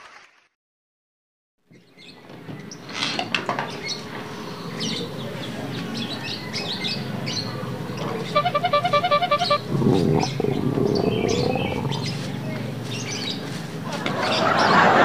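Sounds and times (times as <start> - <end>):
small birds chirping: 1.7 - 14.8
rapid electronic beeping: 8.4 - 9.6.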